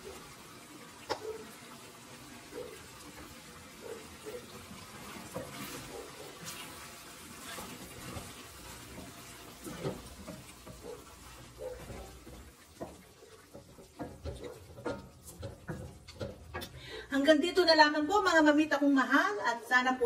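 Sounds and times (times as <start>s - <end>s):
tap water running into sink: 0.0s - 16.9s.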